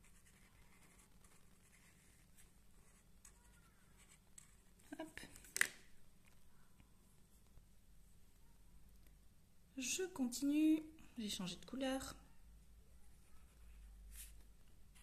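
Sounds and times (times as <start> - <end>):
marker scratching on cardboard: 0.0 - 4.6.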